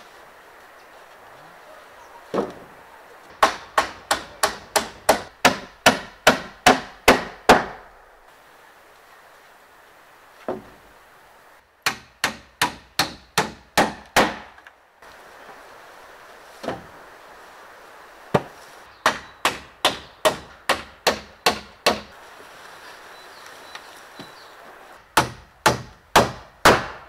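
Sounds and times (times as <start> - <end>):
hammer driving nails into wood: 11.8 - 14.6, 18.4 - 22.1, 25.2 - 27.0.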